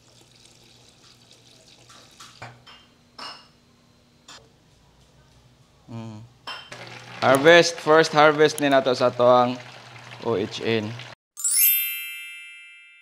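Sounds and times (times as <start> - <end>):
containers and utensils clinking: 6.6 - 9.8.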